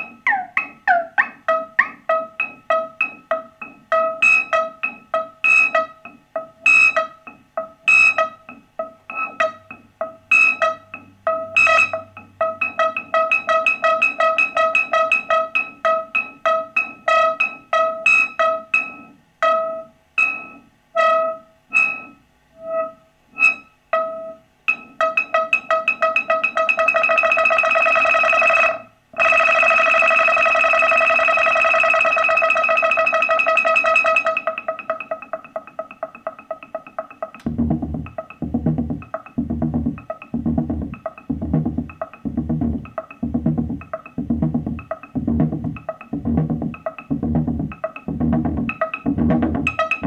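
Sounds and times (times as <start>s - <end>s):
synthesizer repeating short note: 37.4s - 50.0s.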